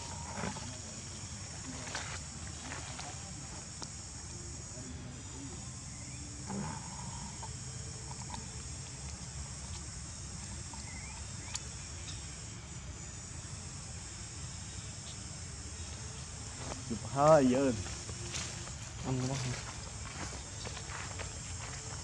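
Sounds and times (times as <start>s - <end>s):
insect chorus drone: 0.0s - 22.0s
faint ticks: 3.7s - 4.4s, 6.5s - 12.2s.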